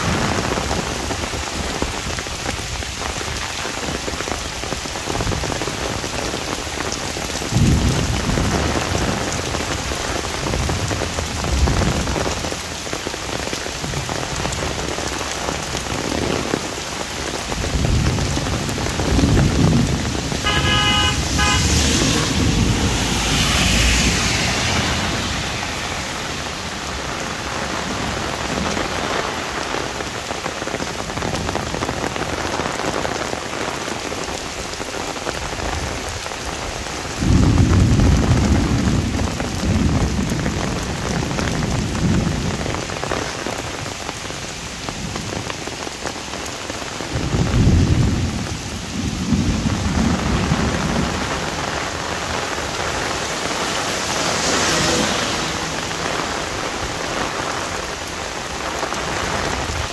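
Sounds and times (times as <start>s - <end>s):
rain pattering on umbrella: 0.0s - 59.9s
thunder rumbling: 13.3s - 30.2s
vehicle horn beeps: 20.4s - 23.8s.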